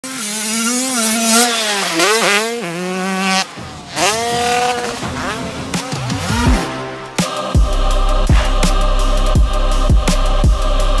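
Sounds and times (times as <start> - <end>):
dirt bike engine revving: 0.0 - 9.8.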